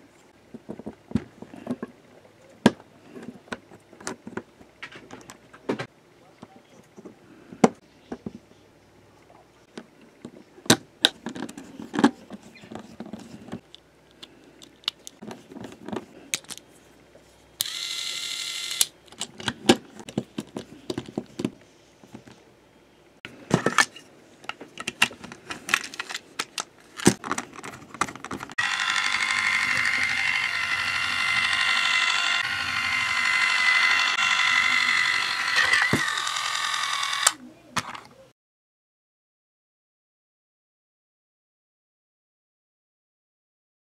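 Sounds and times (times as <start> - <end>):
toy train motor whirring: 17.6 - 18.9, 28.6 - 37.4
plastic parts clicking together: 23.7 - 28.6.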